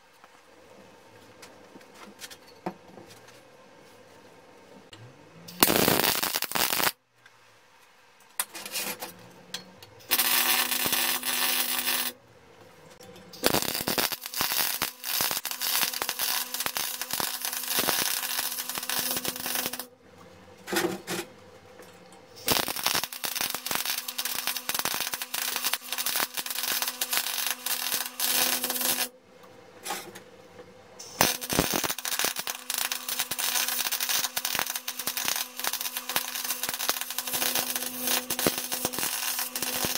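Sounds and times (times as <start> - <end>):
welding arc crackling: 5.6 - 7.0, 10.0 - 12.2, 13.4 - 19.9, 22.4 - 29.1, 31.0 - 39.9.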